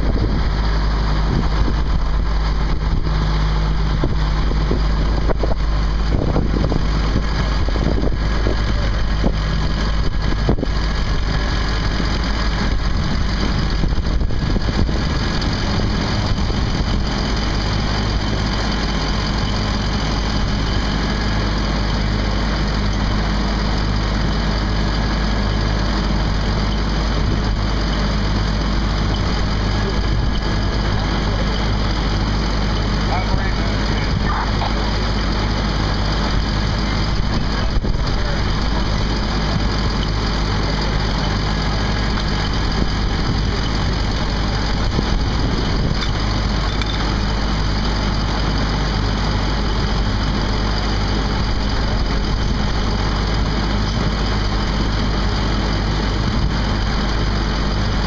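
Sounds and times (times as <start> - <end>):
fire engine idling: 0.0 - 58.0.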